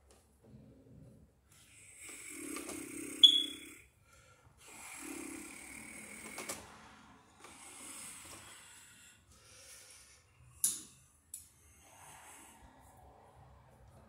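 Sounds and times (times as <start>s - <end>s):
man breathing heavily: 3.9s - 14.0s.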